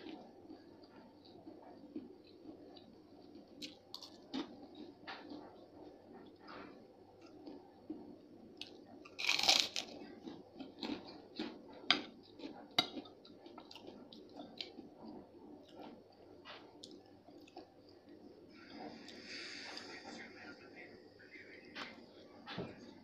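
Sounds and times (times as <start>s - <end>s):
crunchy chewing: 0.0s - 19.9s
crunch of cracker bitten: 9.1s - 10.0s.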